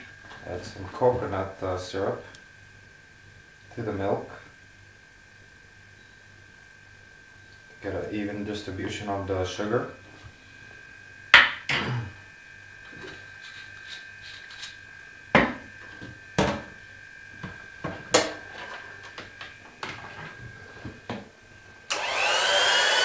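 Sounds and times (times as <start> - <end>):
hand mixer whirring: 21.9 - 23.0.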